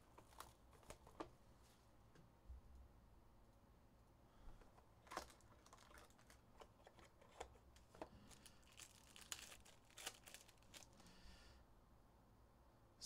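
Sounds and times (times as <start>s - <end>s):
soft clicks and rustles: 0.0s - 2.9s, 4.6s - 11.0s
packaging tearing and crinkling: 0.1s - 1.2s, 5.0s - 11.0s.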